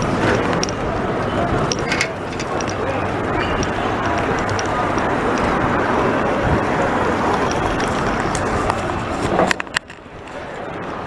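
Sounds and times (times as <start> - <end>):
wind and rolling noise: 0.0 - 11.0
sharp clicks: 3.4 - 5.6.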